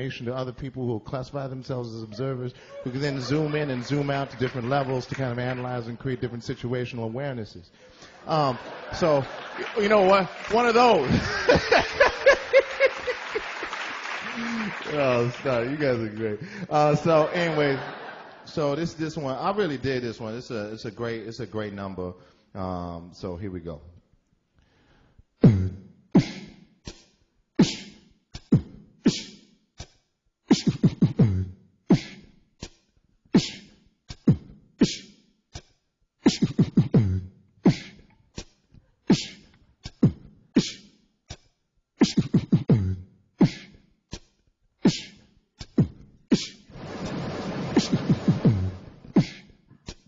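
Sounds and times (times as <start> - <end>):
person beatboxing: 25.4 - 46.7, 47.8 - 50.0.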